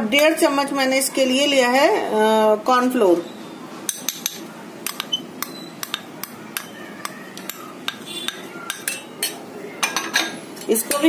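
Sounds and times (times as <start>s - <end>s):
spoon tapping glass bowl: 3.9s - 6.7s, 7.4s - 10.2s.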